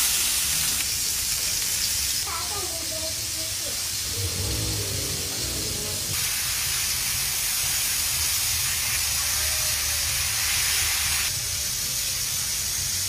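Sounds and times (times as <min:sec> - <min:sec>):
steak sizzling in a skillet: 0:00.0 - 0:04.5, 0:05.2 - 0:13.0
low steady rumble: 0:04.0 - 0:06.2.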